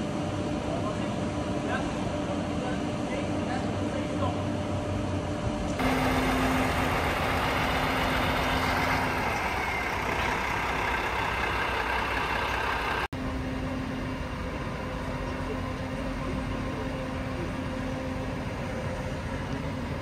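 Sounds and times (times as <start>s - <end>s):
truck engine humming: 5.6s - 20.0s.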